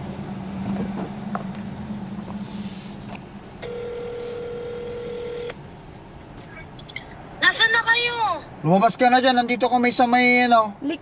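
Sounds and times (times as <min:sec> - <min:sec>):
low hum inside car: 0:00.0 - 0:08.4
telephone ringback tone: 0:03.6 - 0:05.5.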